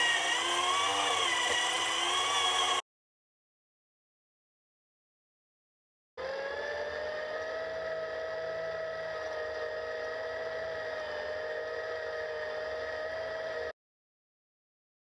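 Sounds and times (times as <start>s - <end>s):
electric tractor motor whining: 0.0s - 2.8s, 6.2s - 13.7s.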